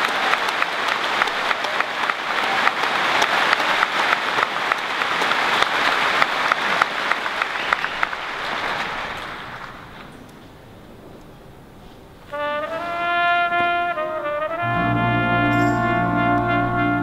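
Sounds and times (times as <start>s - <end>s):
crowd applauding: 0.0s - 10.3s.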